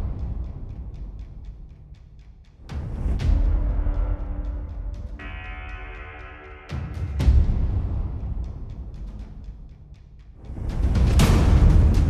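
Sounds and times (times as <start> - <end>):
low drum rumble: 0.0 - 6.3
held orchestral chord: 4.2 - 7.7
heavy drum hit: 11.0 - 12.0.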